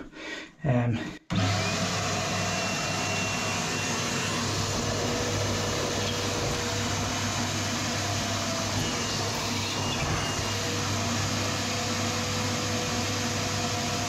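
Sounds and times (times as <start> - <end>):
wet vac humming: 2.6 - 13.4.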